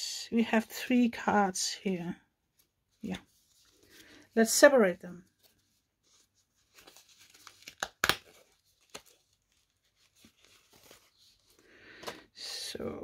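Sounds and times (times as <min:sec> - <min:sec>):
cardboard cards rustling and tearing: 0:05.4 - 0:12.3
cardboard snapping: 0:07.5 - 0:09.1.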